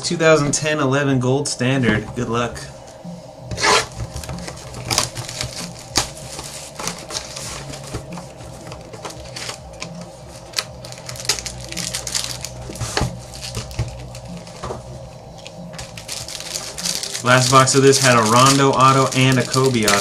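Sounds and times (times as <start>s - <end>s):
cardboard and packaging rustling: 1.9s - 20.0s.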